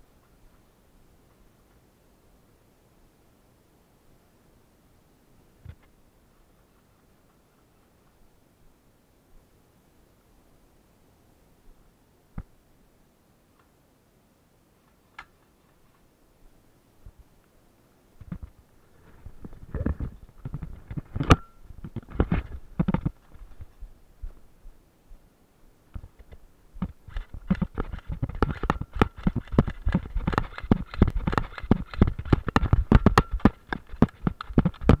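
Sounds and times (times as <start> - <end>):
airsoft gun rapid clicks: 26.8 - 35.0.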